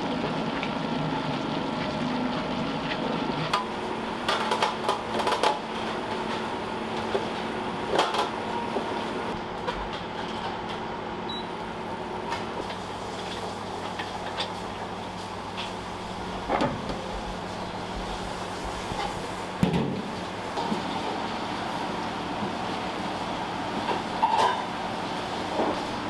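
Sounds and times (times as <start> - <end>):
steady machine hum: 0.0 - 26.0.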